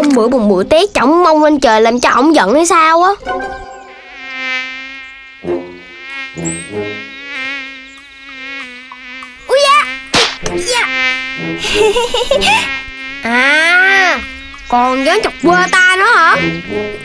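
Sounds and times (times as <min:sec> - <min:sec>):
mosquito buzzing whine: 0:03.4 - 0:17.0
smack: 0:10.1 - 0:10.6.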